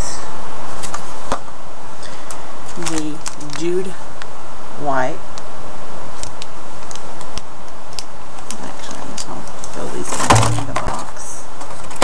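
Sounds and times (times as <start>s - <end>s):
packaging clicks and crinkles: 2.3s - 3.7s
packaging rustling: 2.3s - 3.8s.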